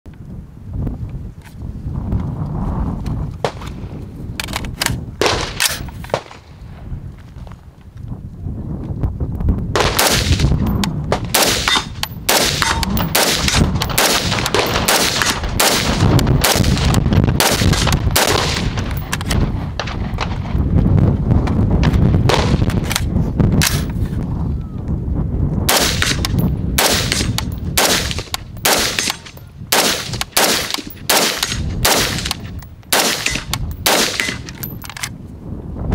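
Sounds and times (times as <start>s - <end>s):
low wind rumble on microphone: 0.0s - 35.9s
rifle shots: 5.2s - 6.4s, 9.8s - 20.4s, 22.3s - 23.9s, 25.7s - 34.8s.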